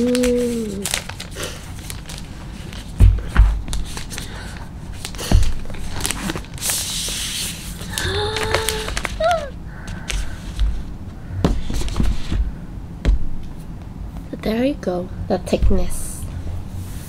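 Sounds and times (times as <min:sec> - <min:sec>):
woman humming: 0:00.0 - 0:00.9, 0:07.9 - 0:09.6.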